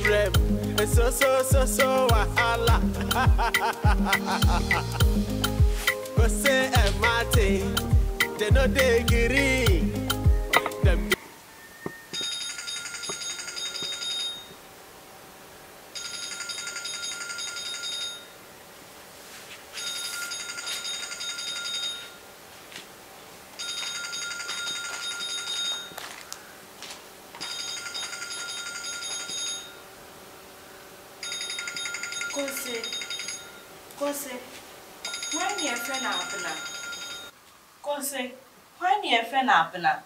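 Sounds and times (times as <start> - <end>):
phone ringing with trilling bell: 10.5 - 14.6, 16.0 - 18.4, 19.7 - 22.2, 23.6 - 26.1, 27.4 - 29.9, 31.2 - 33.7, 35.0 - 37.4.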